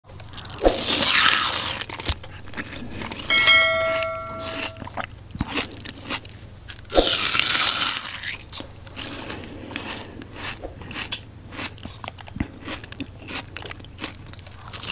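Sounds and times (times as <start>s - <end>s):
cutlery striking glass bowl: 3.3s - 4.8s
chewing and mouth clicks: 8.2s - 14.9s.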